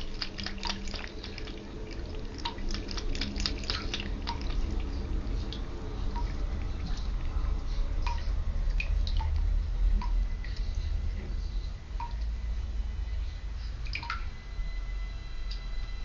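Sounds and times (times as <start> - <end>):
water drops plinking into bathwater: 0.0 - 4.8, 8.0 - 9.4, 12.0 - 12.3, 13.9 - 14.3
low steady rumble: 0.0 - 16.0.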